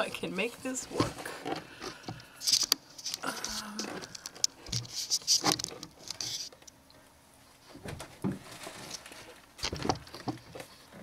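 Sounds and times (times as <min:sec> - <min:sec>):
camera handling rustles and clicks: 0:02.1 - 0:03.2, 0:03.8 - 0:06.8.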